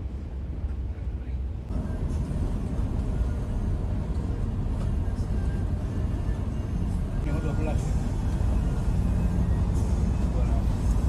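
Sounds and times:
coach engine and road rumble: 0:00.0 - 0:11.0.

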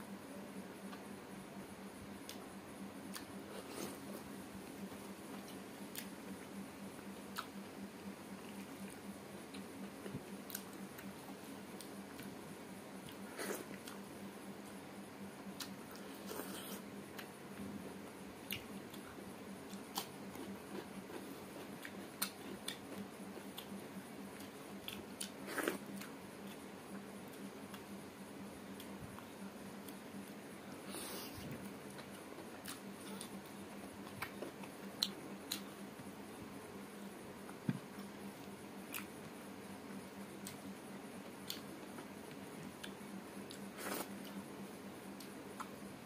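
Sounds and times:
faint low hum: 0:00.0 - 0:46.0
person chewing with wet smacks: 0:03.1 - 0:06.1, 0:07.1 - 0:07.6, 0:13.0 - 0:14.0, 0:18.4 - 0:27.9, 0:31.6 - 0:35.8, 0:37.4 - 0:39.3, 0:40.3 - 0:44.4, 0:45.1 - 0:45.8.

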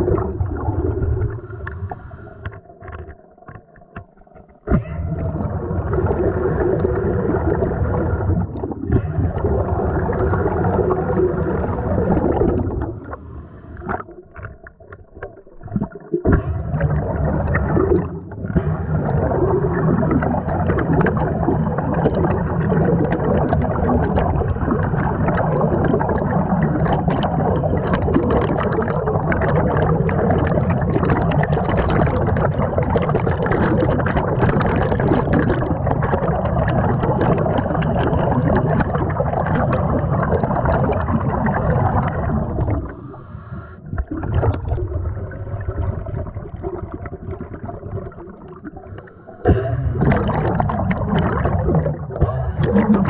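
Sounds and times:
air bubbling and gurgling: 0:00.0 - 0:53.0
underwater pneumatic grinder: 0:04.4 - 0:12.5, 0:16.2 - 0:28.3, 0:48.9 - 0:53.0.

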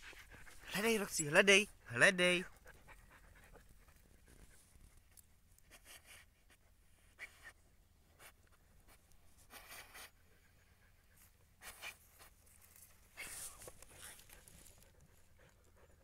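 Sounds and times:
dog scratching in soil: 0:08.2 - 0:10.1, 0:11.2 - 0:15.2.

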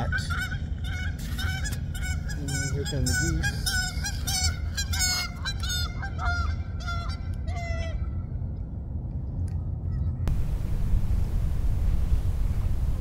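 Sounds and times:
geese honking: 0:00.0 - 0:08.1
low steady rumble: 0:00.0 - 0:13.0.

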